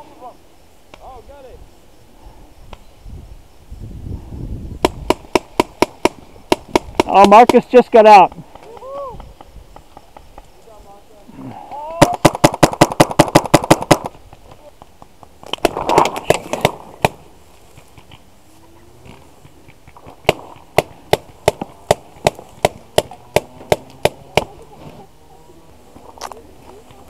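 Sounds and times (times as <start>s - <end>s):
paintball marker firing: 4.8s - 10.4s, 12.0s - 14.2s, 15.4s - 17.2s, 19.4s - 24.6s.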